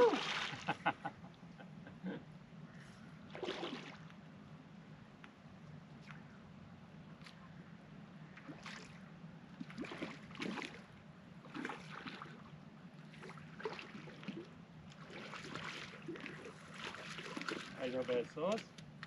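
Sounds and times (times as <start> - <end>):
fish thrashing water splashing: 0.0 - 0.7, 3.3 - 4.0, 9.6 - 10.9, 11.5 - 12.4, 13.2 - 17.9.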